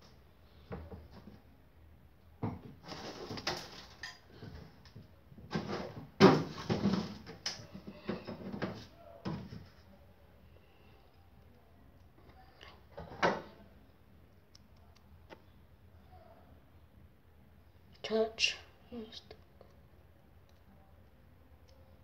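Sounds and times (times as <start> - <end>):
kitchen handling knocks and rattles: 5.4 - 9.6.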